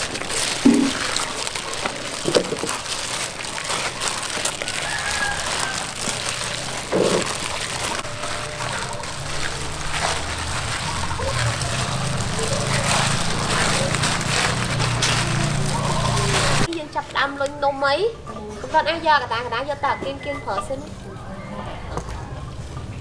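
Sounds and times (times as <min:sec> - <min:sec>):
plastic bag crinkling: 0:00.0 - 0:17.6
dough squishing against metal bowl: 0:00.0 - 0:20.9.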